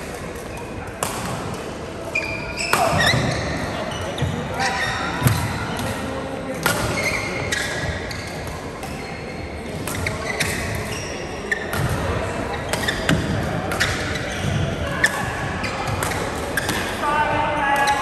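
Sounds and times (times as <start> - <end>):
murmur of voices: 0.0 - 18.0
rackets striking shuttlecock: 0.2 - 1.7, 5.2 - 9.1, 9.7 - 10.9, 11.6 - 17.0
shoe squeaks on court floor: 2.0 - 6.0, 6.7 - 16.9.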